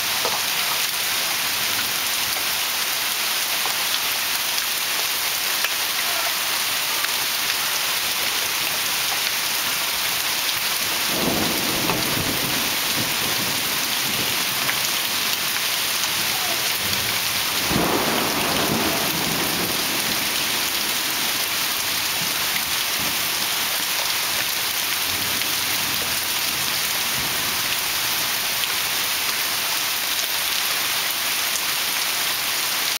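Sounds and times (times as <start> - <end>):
heavy rain falling: 0.0 - 32.9
low rolls of thunder: 11.1 - 14.8, 16.3 - 22.3.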